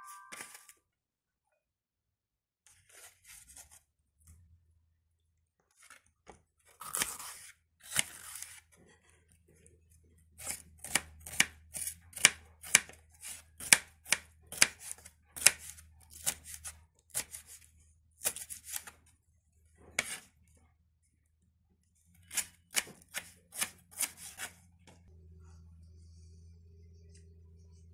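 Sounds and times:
knife chopping on wooden board: 10.4s - 17.5s, 22.3s - 24.5s
knife slicing pepper: 10.4s - 18.9s, 20.0s - 20.3s, 22.2s - 24.6s.

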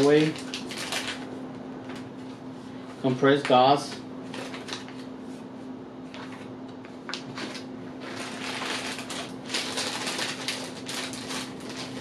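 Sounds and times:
plastic packaging crinkling: 0.0s - 1.3s, 3.4s - 5.1s, 7.1s - 12.0s.

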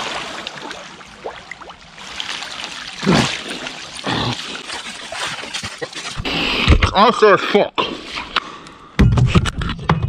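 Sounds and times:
water splashing and trickling: 0.0s - 6.3s.

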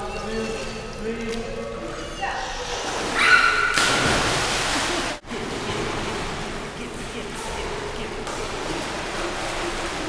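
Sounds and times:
water sloshing and lapping: 0.0s - 10.0s
big water splash: 2.8s - 6.8s.

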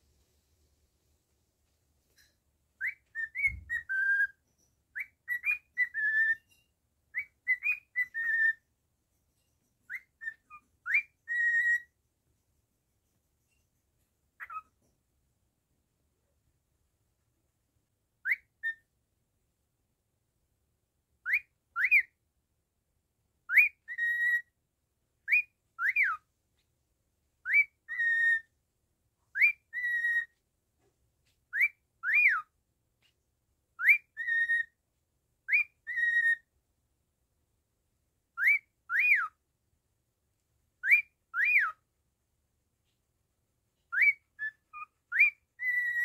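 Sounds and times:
cockatiel whistling: 2.8s - 8.6s, 9.9s - 11.9s, 14.4s - 14.8s, 18.2s - 18.9s, 21.2s - 22.2s, 23.5s - 24.5s, 25.2s - 26.2s, 27.4s - 28.5s, 29.3s - 30.4s, 31.5s - 32.5s, 33.8s - 34.8s, 35.4s - 36.5s, 38.4s - 39.4s, 40.8s - 41.8s, 43.9s - 46.0s.

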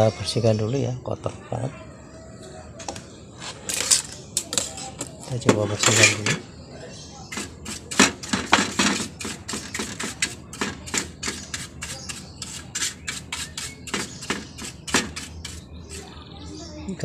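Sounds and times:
brush scratchy swipes: 7.3s - 16.2s.

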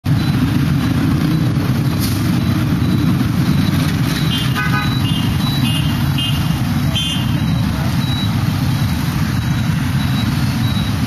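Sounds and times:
motorbike and scooter traffic: 0.0s - 11.0s.

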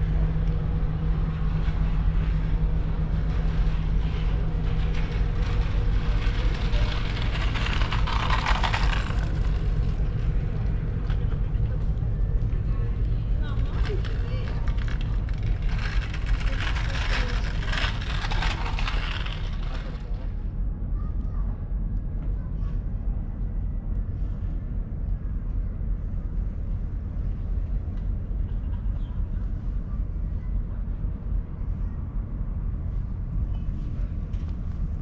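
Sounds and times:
low street rumble: 0.0s - 35.0s
voices: 5.3s - 20.3s.

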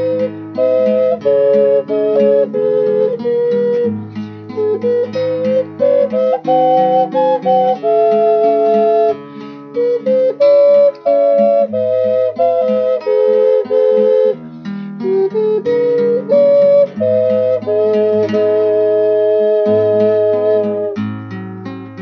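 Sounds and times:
double ocarina melody: 0.0s - 21.4s
plucked acoustic guitar: 0.0s - 22.0s.

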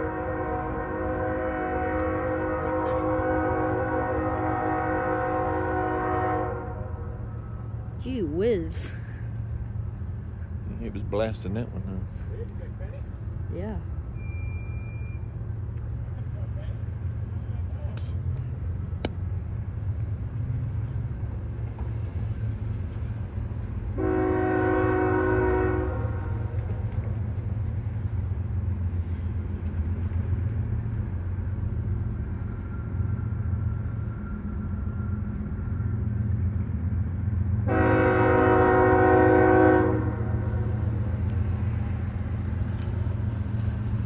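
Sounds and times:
locomotive air horn blasts: 0.0s - 7.2s, 24.0s - 26.5s, 37.6s - 40.7s
low rumble of train: 0.0s - 44.0s.

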